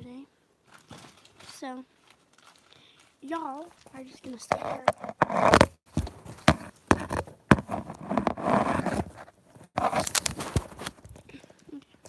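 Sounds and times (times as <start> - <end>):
rubbing on microphone: 4.2 - 11.2
phone handling knocks and scuffs: 4.9 - 11.0.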